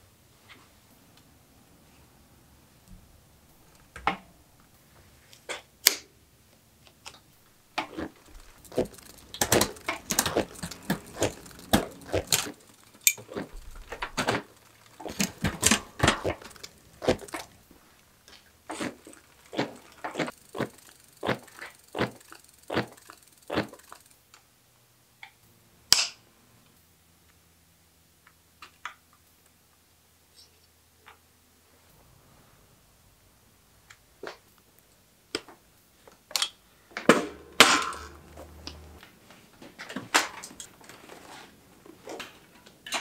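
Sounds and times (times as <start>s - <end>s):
bicycle chain rattling over sprockets: 7.6s - 24.2s.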